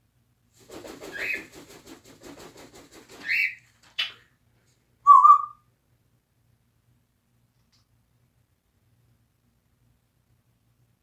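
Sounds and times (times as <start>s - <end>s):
parrot stuttering rattly calls: 1.0s - 1.5s, 3.1s - 4.2s
parrot whistling: 5.0s - 5.6s.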